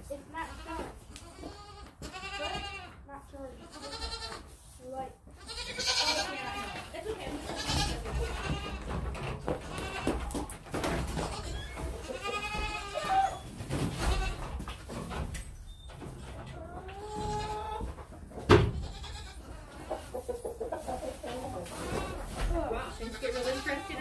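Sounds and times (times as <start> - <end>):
goats bleating: 0.6 - 2.9, 3.6 - 4.4, 5.4 - 8.9, 9.6 - 10.3, 11.2 - 13.4, 18.8 - 19.7, 21.7 - 24.0.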